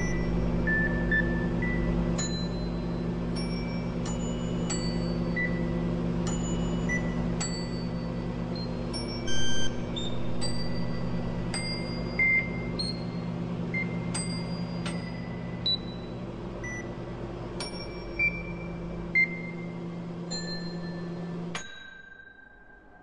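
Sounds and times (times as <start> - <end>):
microwave ovens humming: 0.0 - 21.9
electronic beeps: 8.6 - 10.1.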